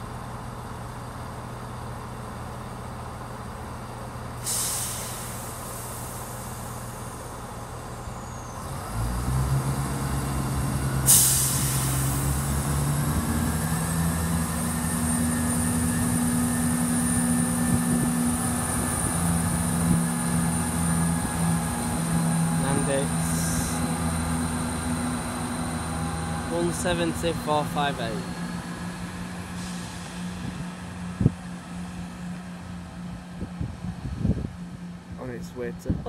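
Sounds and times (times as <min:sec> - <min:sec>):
diesel train engines: 0:00.0 - 0:36.0
air brake hiss: 0:04.4 - 0:06.5, 0:11.0 - 0:12.3, 0:29.5 - 0:30.3.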